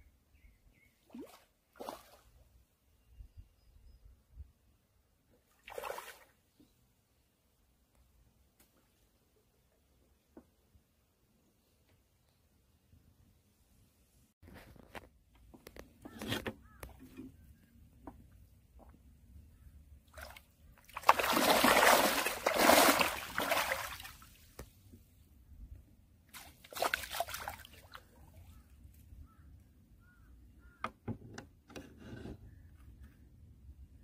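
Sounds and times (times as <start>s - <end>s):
water sloshing through net: 1.1s - 2.3s, 20.1s - 24.6s, 26.3s - 28.2s
loud splashing: 20.9s - 24.2s.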